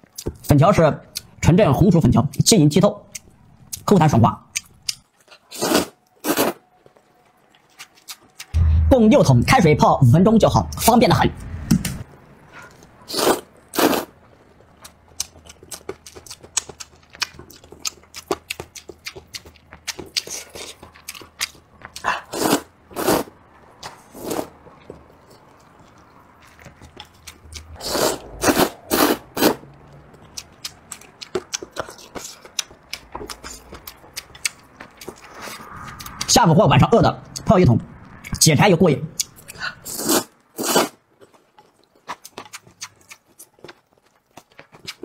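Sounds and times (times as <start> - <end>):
person slurping noodles: 5.5 - 6.6, 12.6 - 14.1, 22.0 - 23.3, 24.1 - 24.5, 27.2 - 29.7, 39.4 - 41.0.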